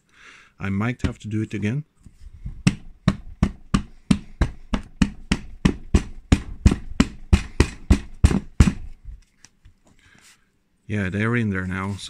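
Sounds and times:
hand knocking on plastic ring: 2.5 - 9.0.

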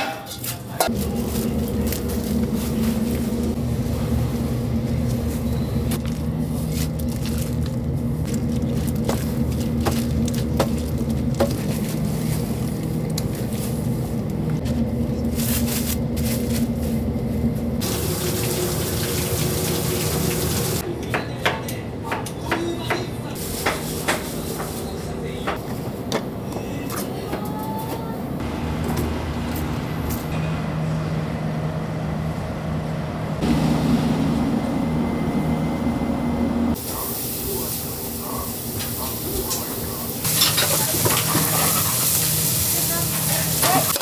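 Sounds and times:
steady low hum: 0.8 - 17.9, 28.0 - 40.3
tap water running: 17.8 - 20.8.

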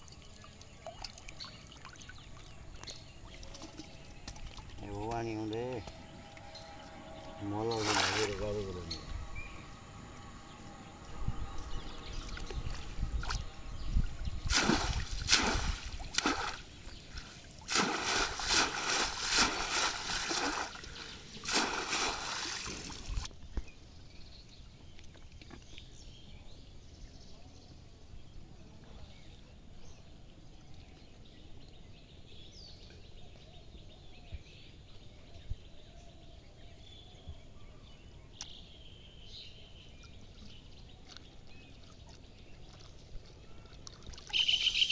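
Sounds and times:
shallow water splashing: 0.0 - 9.1, 12.2 - 23.3, 40.0 - 44.9
high chirps: 44.3 - 44.9.

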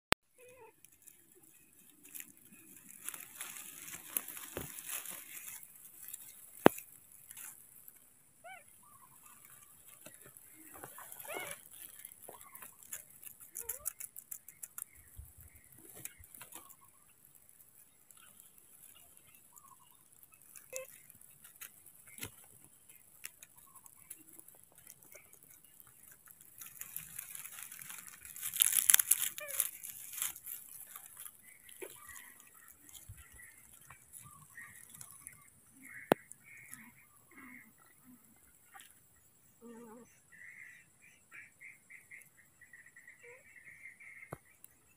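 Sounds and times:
dry grass and leaves rustling: 0.3 - 39.6.

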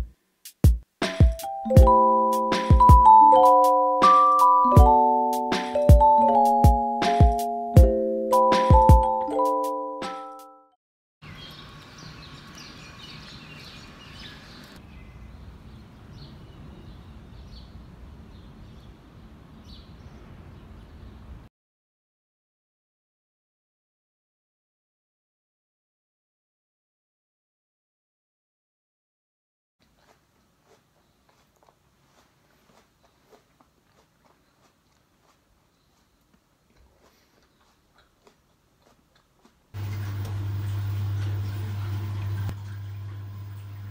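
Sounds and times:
small birds chirping: 11.2 - 21.5, 30.0 - 31.8, 32.7 - 38.7
person chewing apple: 29.8 - 39.8.

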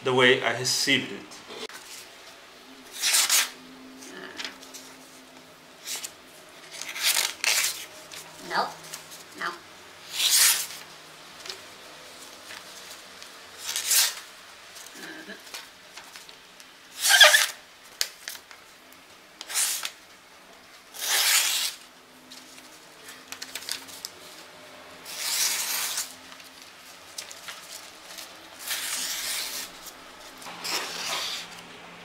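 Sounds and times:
dagger blade slicing paper: 2.9 - 3.6, 10.1 - 10.8, 13.6 - 14.2, 17.0 - 17.6, 19.5 - 20.0, 21.0 - 21.8, 25.1 - 26.1, 28.6 - 29.8, 30.5 - 31.6.

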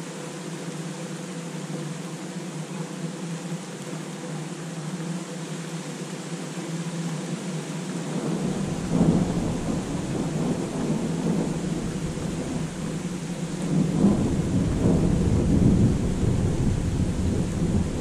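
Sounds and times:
rain hissing: 3.6 - 18.0
thunder rumbling: 8.1 - 18.0.

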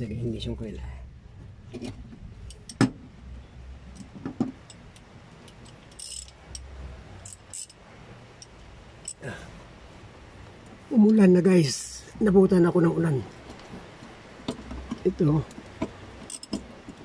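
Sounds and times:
small metal objects clicking: 5.5 - 7.8, 16.2 - 16.6
metallic jingle: 5.9 - 6.4, 7.2 - 7.8, 16.3 - 16.6.

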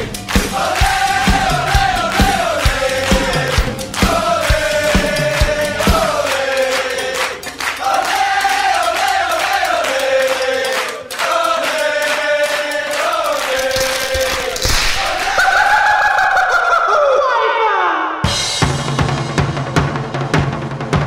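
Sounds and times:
choir-like sung music: 0.0 - 16.8.

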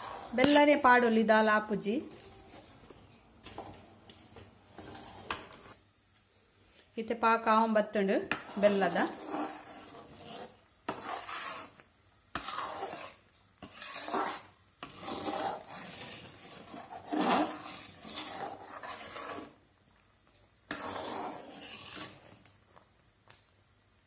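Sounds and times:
metal spatula scraping thick syrup: 0.0 - 0.7, 4.6 - 5.8, 8.2 - 19.6, 20.7 - 22.5.

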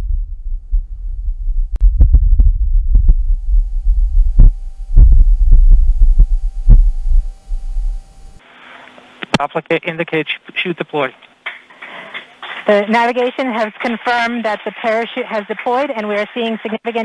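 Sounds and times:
gusty wind rumble: 0.0 - 8.4.

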